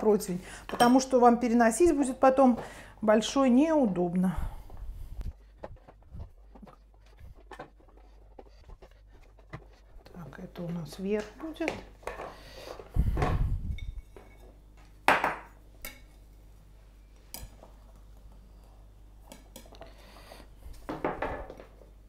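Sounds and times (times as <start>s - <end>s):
rolling pin rolling over dough: 3.1s - 12.2s.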